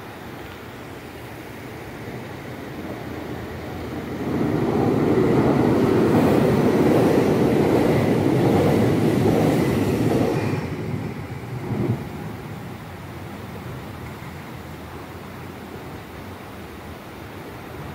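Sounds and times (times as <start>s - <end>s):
train wheels rumbling on rails: 1.8s - 14.6s.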